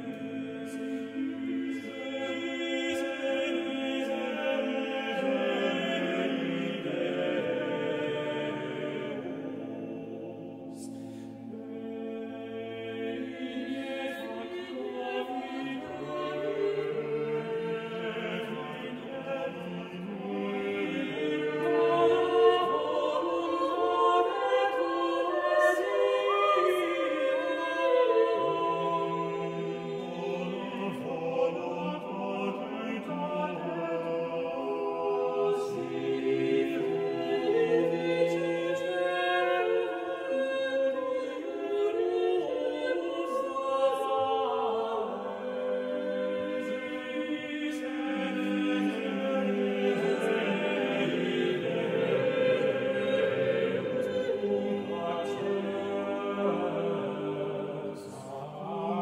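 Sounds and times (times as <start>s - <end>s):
choir singing slowly: 0.0s - 59.0s.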